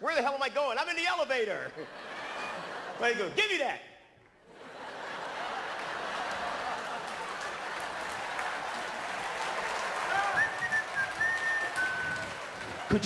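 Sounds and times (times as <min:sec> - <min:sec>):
audience applauding: 0:04.2 - 0:13.0
whistle from the crowd: 0:10.1 - 0:12.4.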